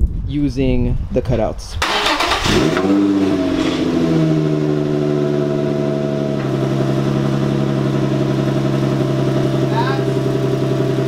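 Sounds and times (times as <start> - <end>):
car engine idling: 1.9 - 11.0.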